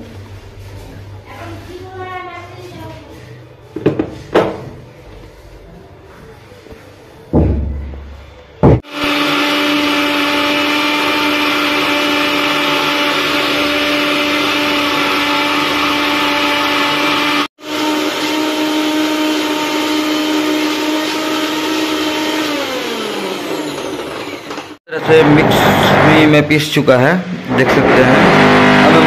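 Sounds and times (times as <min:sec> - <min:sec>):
mixer grinder motor whine: 0:08.7 - 0:26.3, 0:27.8 - 0:29.0.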